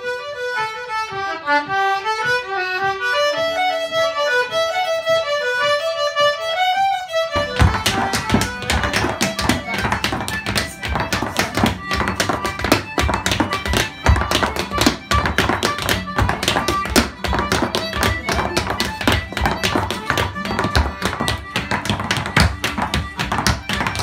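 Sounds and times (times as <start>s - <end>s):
folk tune on instruments: 0.0s - 24.0s
hard shoes tapping on wooden floor: 7.4s - 24.0s.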